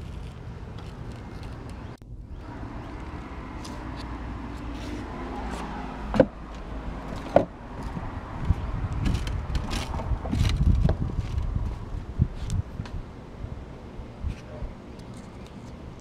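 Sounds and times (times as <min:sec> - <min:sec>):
roof tiles clacking underfoot: 0:06.2 - 0:11.8
wind buffeting microphone: 0:06.3 - 0:14.8.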